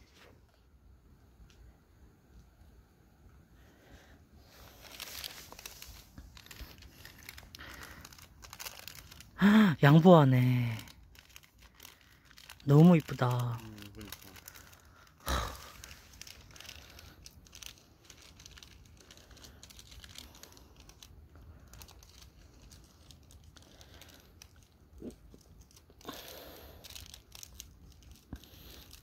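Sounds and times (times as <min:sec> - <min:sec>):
faint rustling and crackling: 0:03.6 - 0:29.0.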